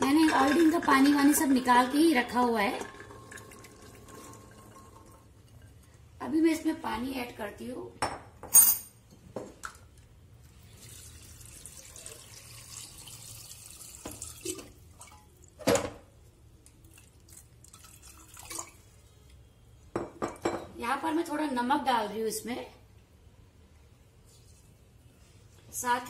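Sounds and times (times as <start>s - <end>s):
water pouring into a pot: 0.0s - 6.1s, 10.4s - 15.6s, 16.5s - 19.0s
sharp metal clink: 8.5s - 9.0s.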